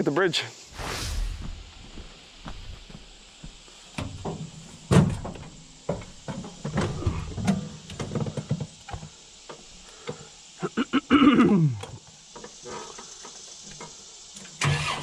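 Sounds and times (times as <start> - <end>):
knocks and thumps climbing onto tractor: 2.5 - 10.2.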